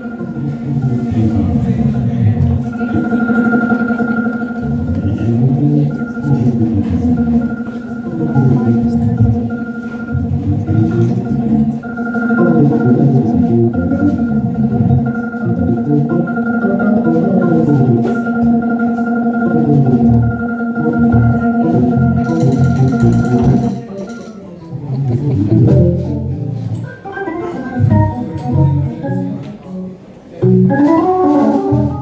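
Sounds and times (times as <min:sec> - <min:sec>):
organ chords and bass line: 0:00.0 - 0:24.0, 0:24.8 - 0:29.5, 0:30.4 - 0:32.0
drums: 0:00.1 - 0:23.9, 0:25.2 - 0:26.8, 0:30.4 - 0:32.0
electric guitar: 0:24.9 - 0:32.0.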